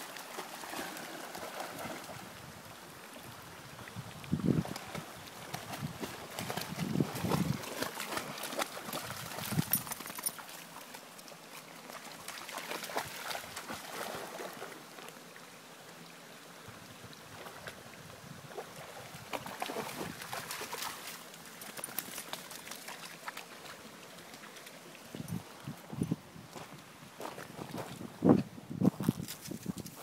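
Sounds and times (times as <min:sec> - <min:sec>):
stream trickling: 0:00.0 - 0:30.0
dog splashing through water: 0:00.1 - 0:02.3, 0:04.6 - 0:10.8, 0:11.9 - 0:14.8, 0:18.5 - 0:23.8.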